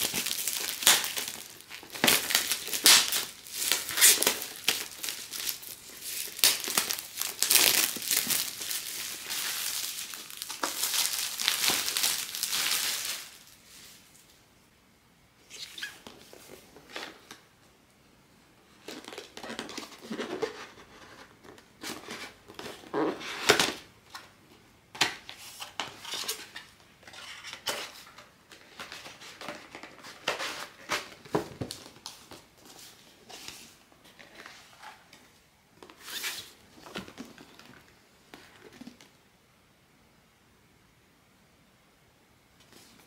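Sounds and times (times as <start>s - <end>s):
handling toy packaging: 0.0s - 14.2s, 18.8s - 24.3s.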